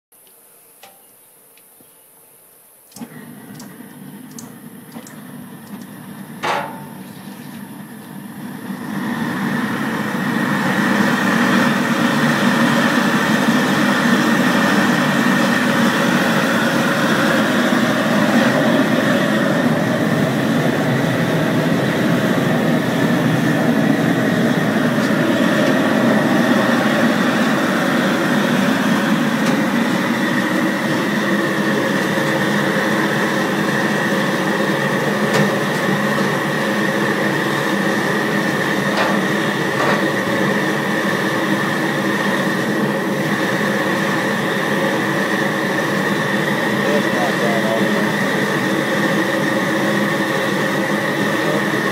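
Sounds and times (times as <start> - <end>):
gas burner roar: 2.8 - 51.9
burner ticks: 2.9 - 5.9
burner igniting pop: 4.3 - 7.0.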